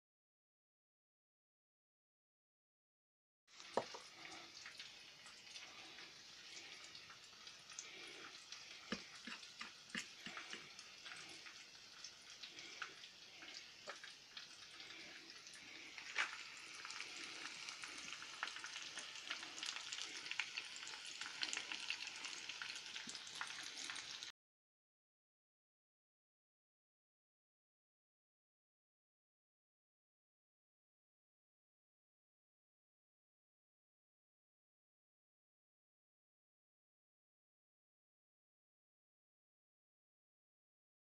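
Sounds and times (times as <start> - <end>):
chicken frying in oil: 3.5 - 24.3.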